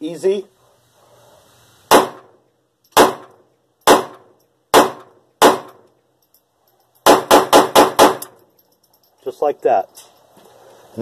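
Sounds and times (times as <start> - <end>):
pistol gunshots: 1.9 - 5.8, 7.0 - 8.4.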